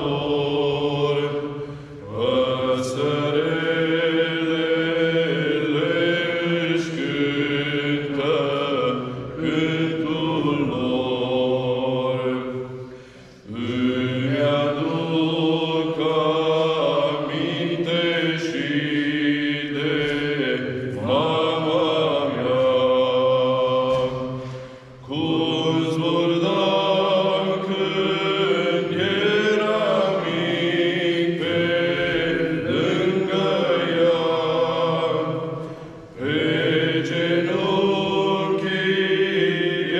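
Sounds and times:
two men singing unaccompanied: 0.0s - 12.6s, 13.5s - 39.9s.

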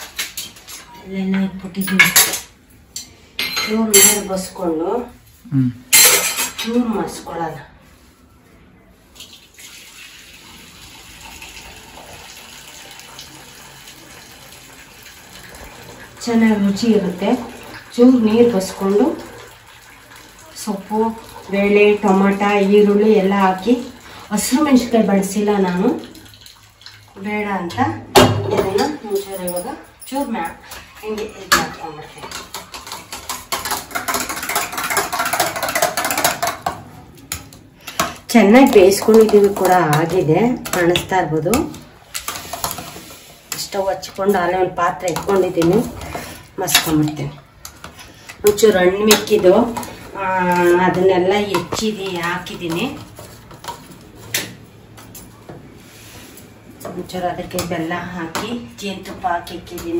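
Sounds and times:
water pouring into metal vessel: 9.2s - 23.0s.

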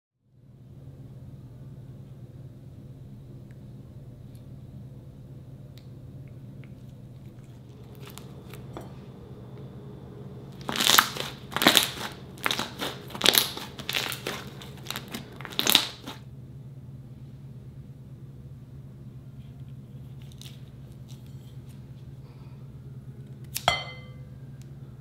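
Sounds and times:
slime squishing: 10.5s - 16.2s.

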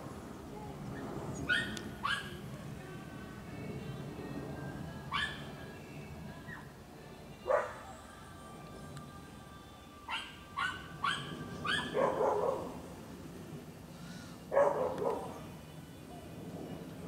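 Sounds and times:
airplane rumble overhead: 0.0s - 17.0s
high dog yaps: 1.5s - 2.3s, 10.1s - 12.7s, 14.5s - 15.3s
dogs barking: 1.5s - 2.4s, 7.5s - 7.8s, 10.1s - 12.8s, 14.5s - 15.4s.

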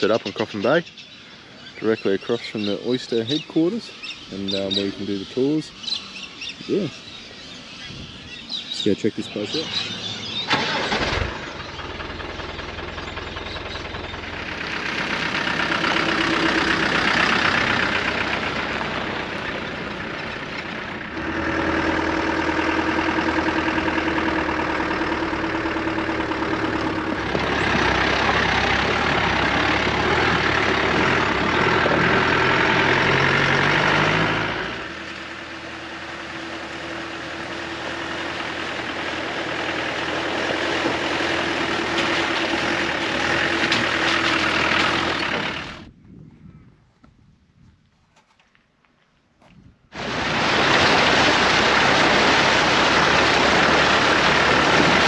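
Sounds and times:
diesel engine running: 0.0s - 46.0s, 49.9s - 55.0s.

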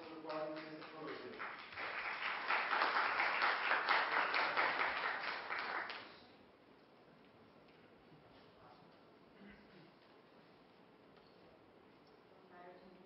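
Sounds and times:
audience applauding: 0.0s - 6.2s.

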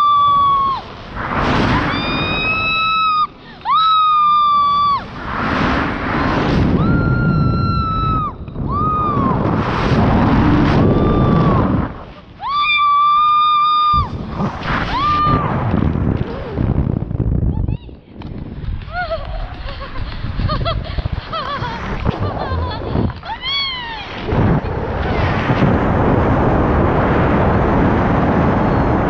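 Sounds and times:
rushing wind: 0.0s - 29.0s.

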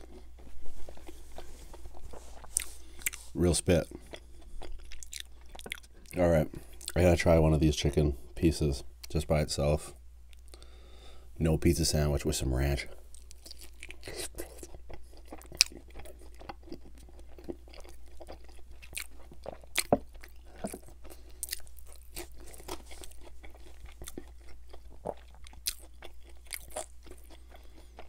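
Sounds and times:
man chewing crunchy food: 0.0s - 7.2s, 13.0s - 28.0s.

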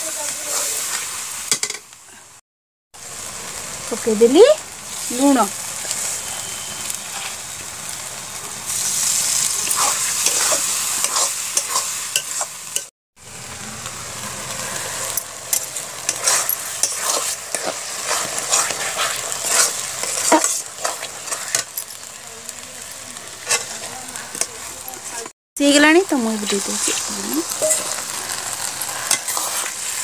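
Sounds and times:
food sizzling in a pan: 0.0s - 2.4s, 3.0s - 30.0s
metal ladle scraping a pan: 9.6s - 12.9s, 15.5s - 21.7s, 23.4s - 24.4s, 27.6s - 30.0s.

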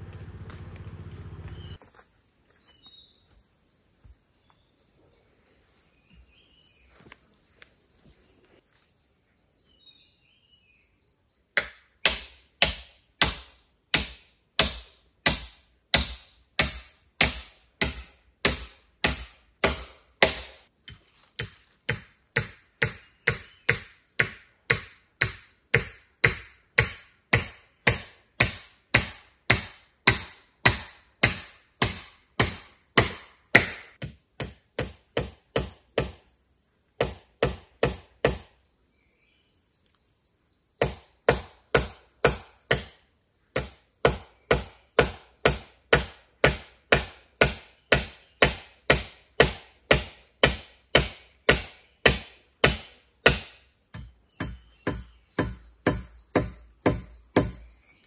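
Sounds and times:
tool striking wood: 11.6s - 36.2s, 37.0s - 38.5s, 40.8s - 43.0s, 43.6s - 57.7s.

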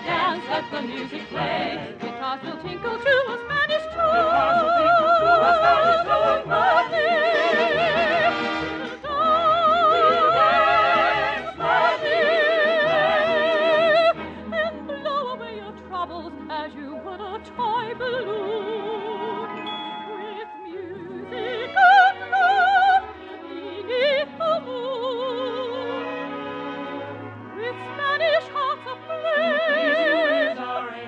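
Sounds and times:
soprano singing with vibrato: 0.0s - 26.3s, 27.6s - 31.0s
orchestra playing: 0.0s - 31.0s.

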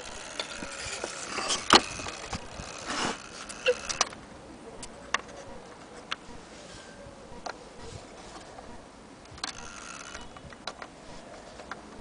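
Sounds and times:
short scrape: 2.8s - 3.3s.

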